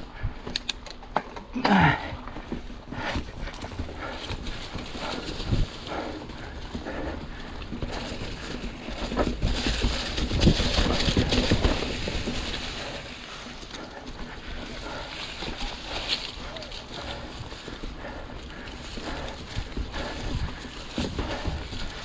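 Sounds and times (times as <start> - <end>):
bike rattling: 0.0 - 22.0
tyres crunching through dry leaves: 3.7 - 22.0.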